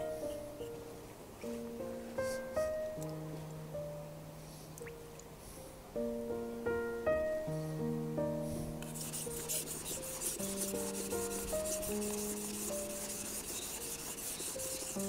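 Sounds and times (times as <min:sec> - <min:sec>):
soft background music: 0:00.0 - 0:15.0
knife scraping on whetstone: 0:09.0 - 0:15.0.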